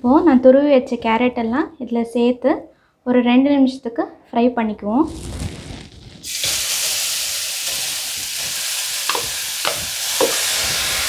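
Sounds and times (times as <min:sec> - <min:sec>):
carrot sizzling in hot fat: 0:05.1 - 0:11.0
spoon tapping a bowl: 0:09.1 - 0:10.5.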